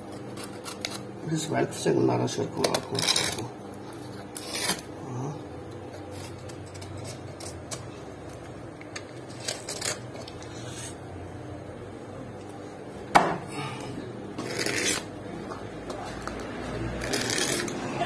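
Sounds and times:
knife scraping ribs: 0:00.0 - 0:01.1, 0:02.8 - 0:04.9, 0:09.3 - 0:11.0, 0:14.4 - 0:15.1, 0:17.0 - 0:17.9
steady low hum: 0:00.0 - 0:18.0.

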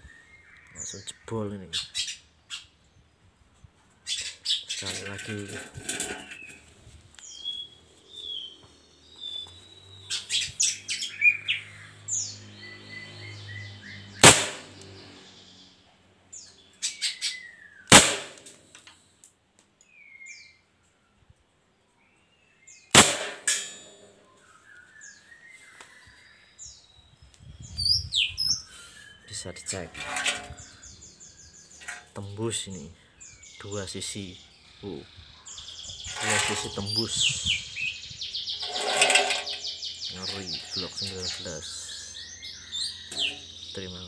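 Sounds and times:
birds chirping: 0:00.0 - 0:19.2, 0:19.8 - 0:44.0
airsoft pistol shots: 0:14.2 - 0:14.7, 0:17.9 - 0:18.6, 0:22.9 - 0:24.1.

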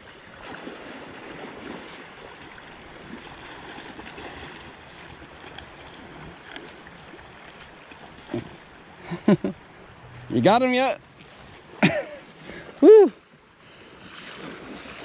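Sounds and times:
creek water rushing: 0:00.0 - 0:15.0
faint ticks: 0:03.0 - 0:04.8.

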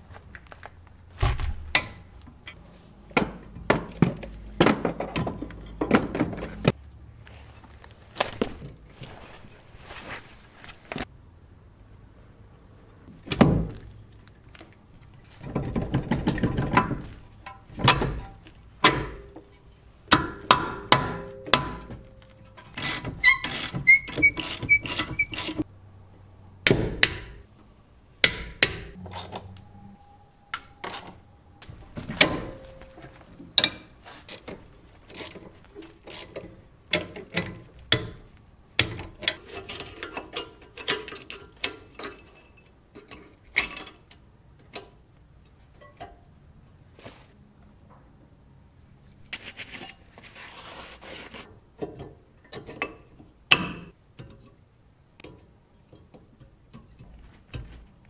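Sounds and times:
metal tools clanking: 0:20.2 - 0:25.6, 0:30.5 - 0:38.2.

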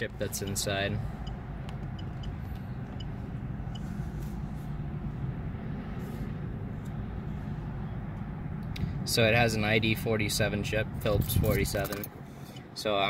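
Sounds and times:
car cabin rumble: 0:00.0 - 0:08.8.

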